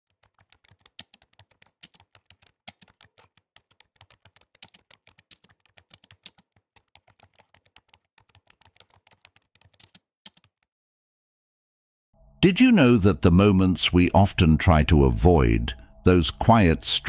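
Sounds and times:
keystroke clicks: 0:00.1 - 0:10.6.

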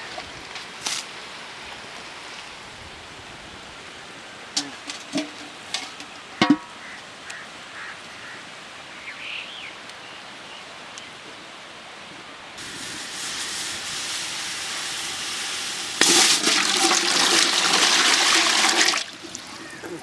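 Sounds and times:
water rushing and pouring: 0:12.6 - 0:20.0.

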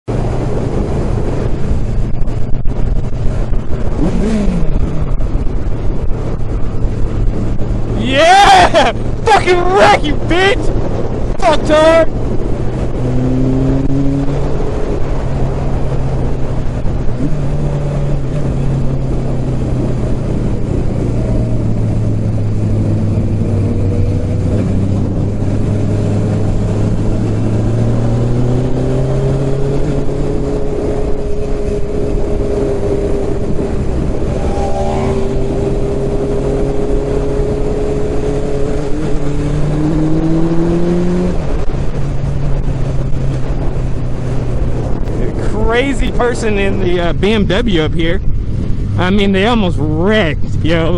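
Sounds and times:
wind rush: 0:00.1 - 0:49.1
motorcycle engine running: 0:29.5 - 0:40.8.

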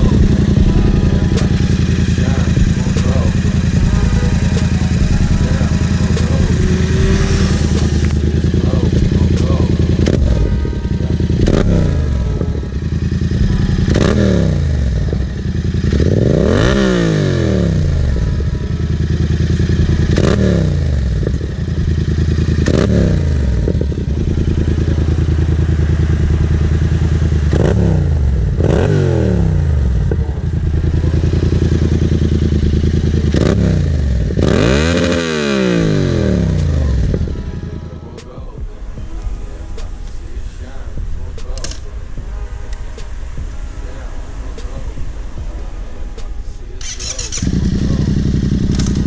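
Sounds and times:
motorcycle engine idling and revving: 0:00.0 - 0:49.0.

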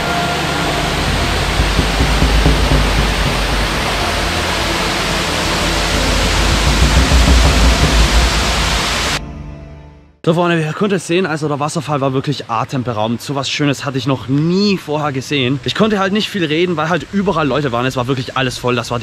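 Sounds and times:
waterfall splashing into pool: 0:00.1 - 0:09.2.

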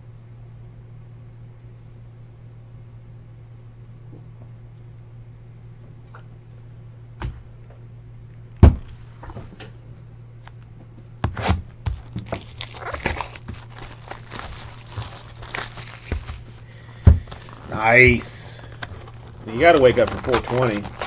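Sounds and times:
plastic wrapping crinkling and tearing: 0:11.9 - 0:21.0.

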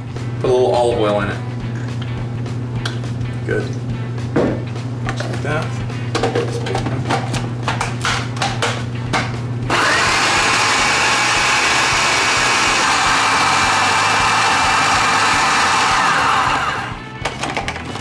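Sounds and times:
food processor chopping: 0:09.7 - 0:18.0.

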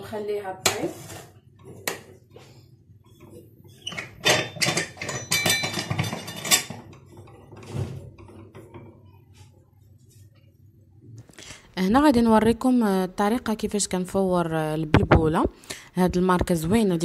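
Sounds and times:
metal lid clanking and clicking: 0:03.9 - 0:06.9.

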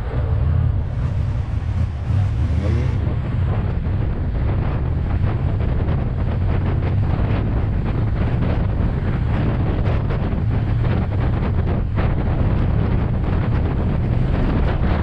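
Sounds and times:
motorcycle engine running: 0:00.0 - 0:15.0
wind buffeting microphone: 0:00.0 - 0:15.0.

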